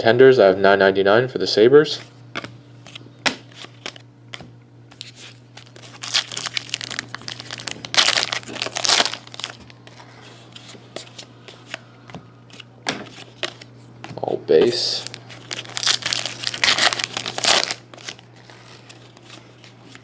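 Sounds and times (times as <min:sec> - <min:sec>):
foil wrapper tearing and crinkling: 0:05.0 - 0:09.6, 0:14.9 - 0:18.3.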